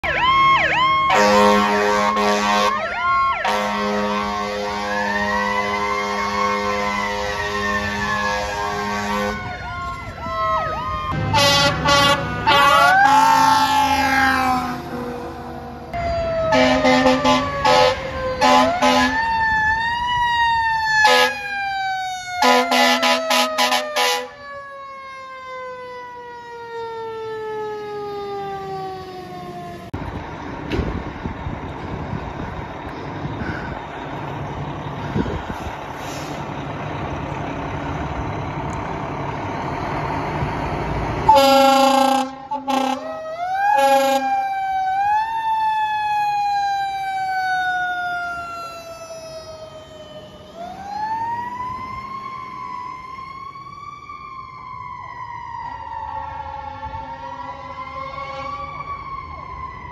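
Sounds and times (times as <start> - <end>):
fire truck air horns blasting: 0.6 - 19.5, 20.8 - 24.6, 34.9 - 36.9, 39.6 - 44.6, 56.6 - 58.8.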